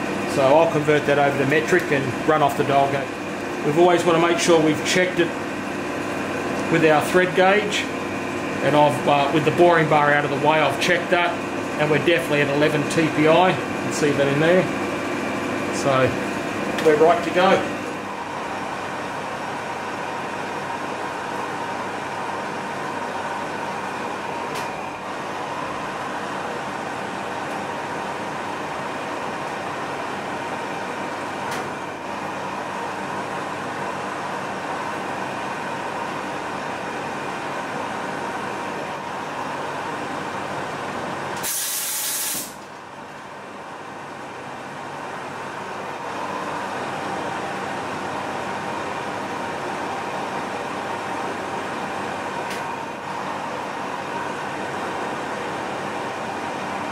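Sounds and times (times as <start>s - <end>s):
metal lathe running: 0.0s - 33.8s
loud hiss: 41.4s - 42.6s.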